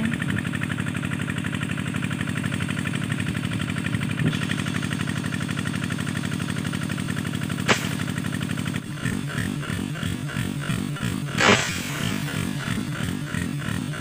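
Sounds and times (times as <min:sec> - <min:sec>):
water pump engine chugging: 0:00.0 - 0:14.0
airgun firing crack: 0:07.6 - 0:08.6, 0:11.3 - 0:12.8.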